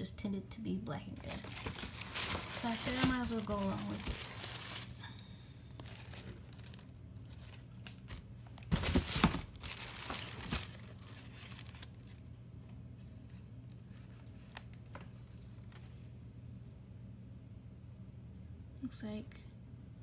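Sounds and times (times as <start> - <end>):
tissue paper crinkling and rustling: 1.2 - 5.1, 5.7 - 12.2, 13.0 - 15.8.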